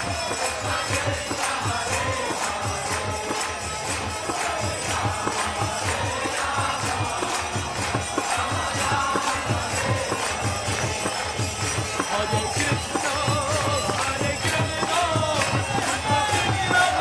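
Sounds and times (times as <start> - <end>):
hand cymbals ringing: 0.0 - 17.0
harmonium: 0.0 - 17.0
person singing into a microphone: 4.3 - 17.0.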